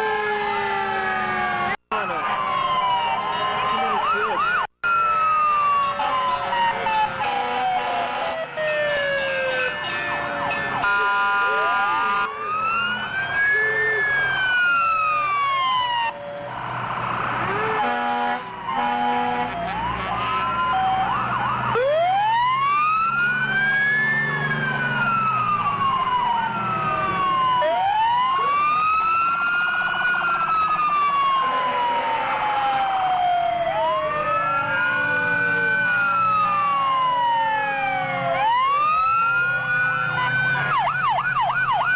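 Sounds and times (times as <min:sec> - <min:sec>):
fire engine sirens wailing: 0:00.0 - 0:41.9
horn blasts: 0:05.7 - 0:12.6, 0:17.4 - 0:21.1, 0:31.3 - 0:33.1.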